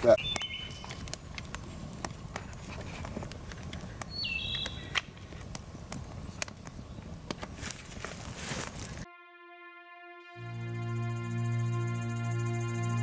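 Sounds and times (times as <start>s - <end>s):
campfire crackling and popping: 0.0s - 9.0s.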